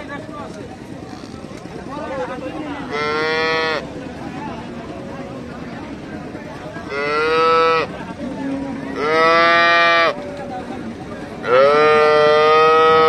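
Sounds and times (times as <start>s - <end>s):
calf mooing: 2.9s - 3.8s, 6.9s - 10.2s, 11.4s - 13.0s.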